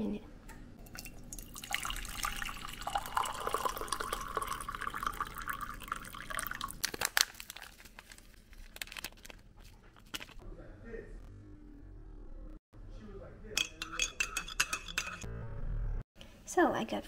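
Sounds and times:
water pouring into a mug: 0.8 - 6.8.

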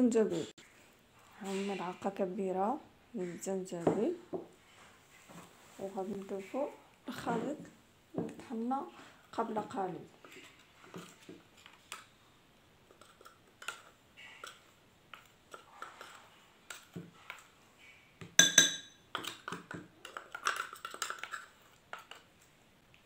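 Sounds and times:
metal spoon scraping: 12.9 - 22.2.

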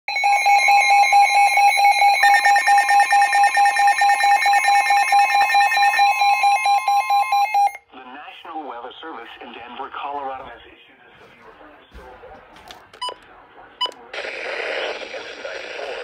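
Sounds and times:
weather radio alarm beeps: 0.1 - 7.8.

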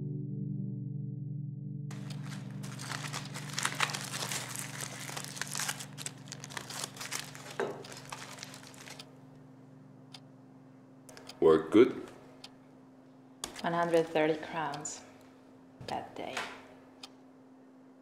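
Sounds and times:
aluminium foil crinkling: 1.9 - 9.1, 13.4 - 14.4.

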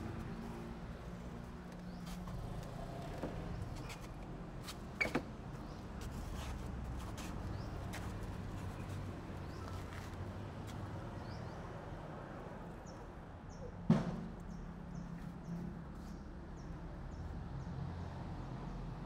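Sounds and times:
sharp knock: 13.9 - 14.4.

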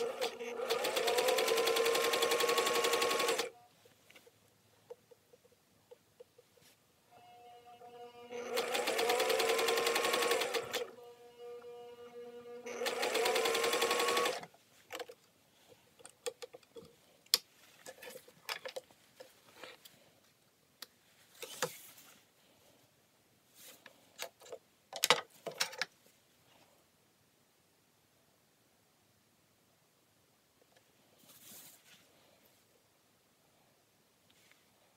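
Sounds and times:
sewing machine stitching: 0.0 - 3.6, 8.2 - 11.0, 12.6 - 14.5
fabric rustle: 31.0 - 32.7.

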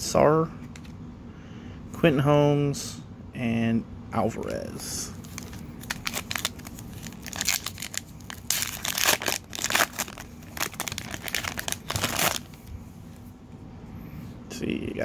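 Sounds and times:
wrapper tearing and crinkling: 5.2 - 12.6.

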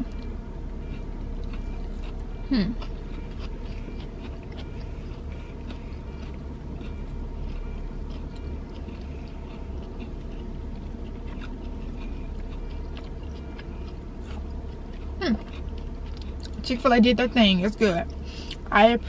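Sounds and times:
person chewing food: 0.0 - 16.6
steady low hum: 0.0 - 19.0
person humming: 2.5 - 2.8.

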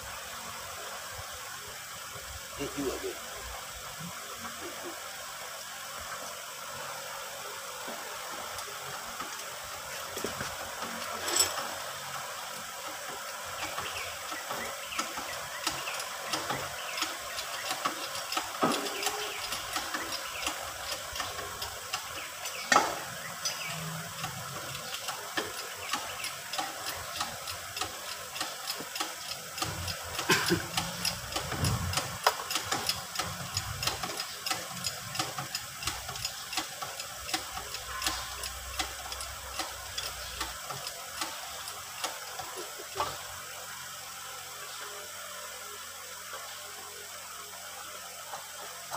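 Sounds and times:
hand tools clicking on metal: 24.2 - 42.5.

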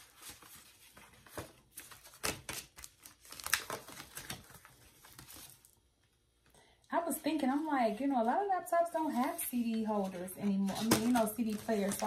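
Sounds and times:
paper cards and packaging rustling: 0.0 - 5.9, 9.0 - 12.0.

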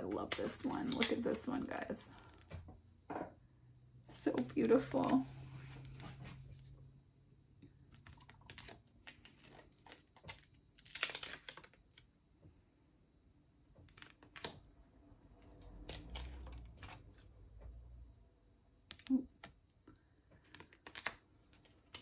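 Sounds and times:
cards rustling against each other: 4.2 - 6.8, 7.8 - 12.1, 13.8 - 14.6, 15.4 - 17.4, 20.3 - 22.0.

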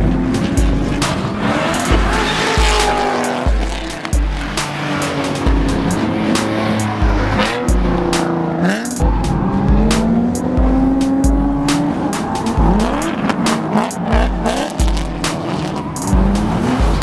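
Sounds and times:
background music with steady beat: 0.0 - 17.0
car engines revving: 0.0 - 17.0
tires squealing: 0.0 - 17.0.

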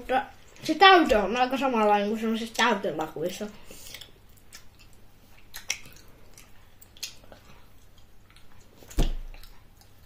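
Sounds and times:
mouth chewing candy: 3.0 - 10.0.

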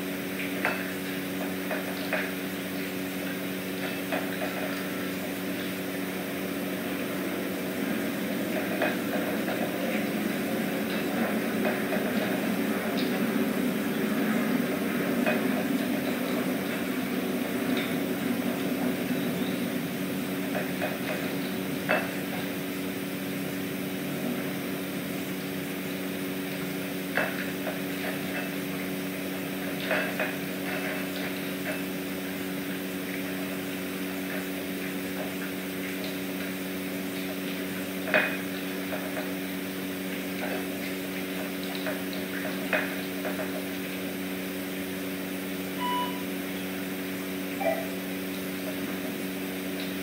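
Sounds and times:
room hum: 45.6 - 49.2.

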